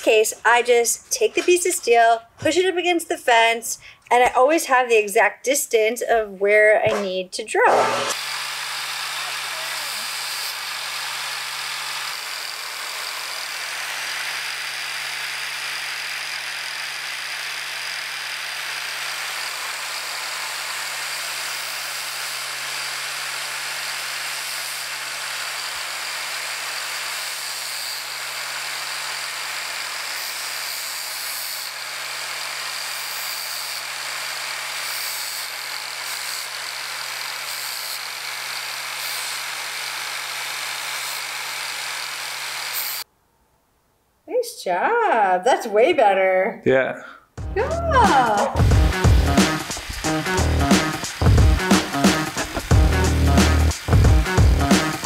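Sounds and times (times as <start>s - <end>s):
drill press motor hum: 7.7s - 43.0s, 48.6s - 55.0s.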